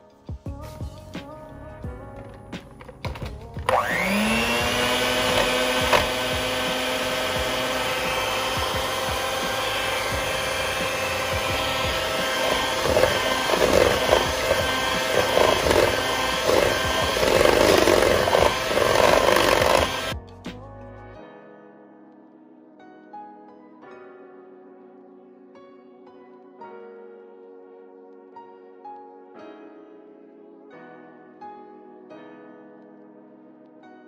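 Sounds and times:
electric hand mixer running: 3.6s - 20.2s
scraping in mixing bowl: 4.6s - 20.2s.

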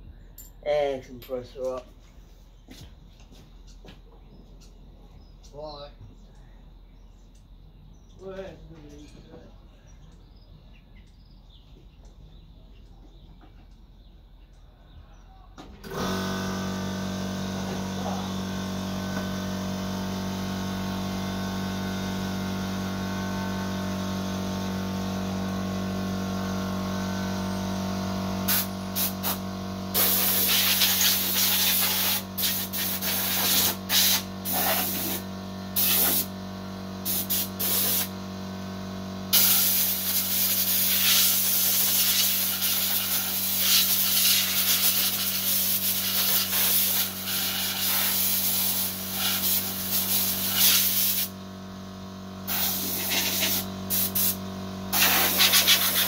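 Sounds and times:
air compressor humming: 15.6s - 56.0s
compressed air hissing: 28.5s - 36.3s, 37.0s - 38.2s, 39.3s - 51.4s, 52.4s - 56.0s.

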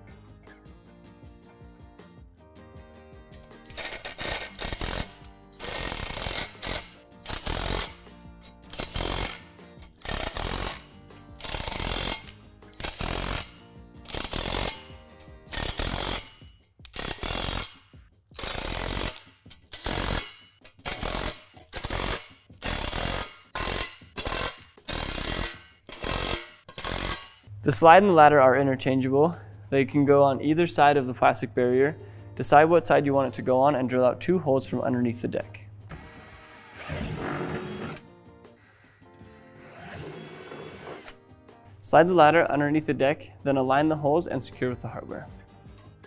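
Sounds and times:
cordless drill driving bolts: 11.4s - 13.5s, 35.9s - 38.1s.

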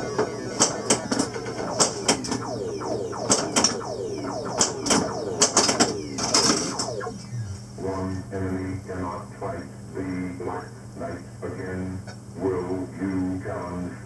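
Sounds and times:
electronic falling tones: 0.0s - 8.3s.

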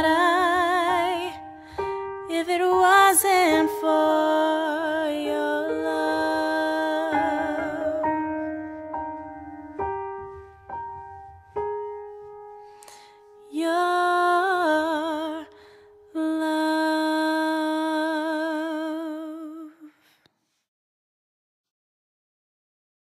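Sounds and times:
woman singing with vibrato: 0.0s - 1.6s, 2.2s - 8.4s, 13.5s - 19.9s
piano notes ringing: 0.0s - 17.2s.

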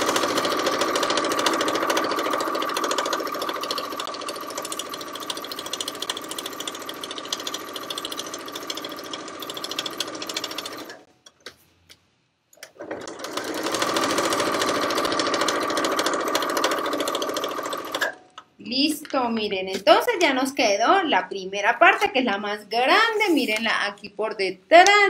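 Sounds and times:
sewing machine stitching: 0.0s - 11.1s, 12.6s - 18.2s.

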